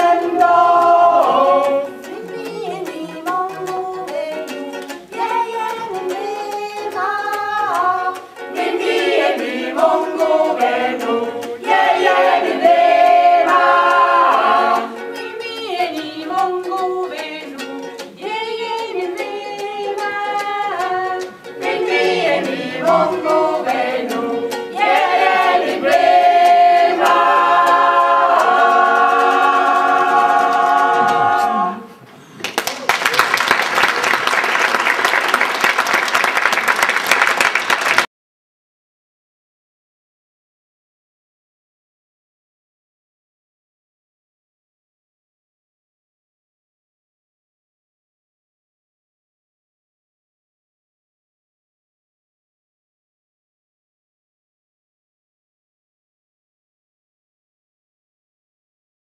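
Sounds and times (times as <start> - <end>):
small choir singing: 0.0 - 32.0.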